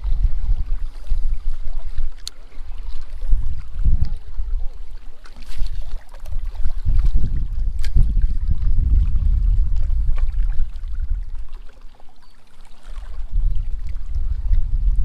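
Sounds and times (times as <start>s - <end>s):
wind buffeting microphone: 0.0s - 11.8s, 12.8s - 15.0s
small waves lapping on rocks: 0.0s - 15.0s.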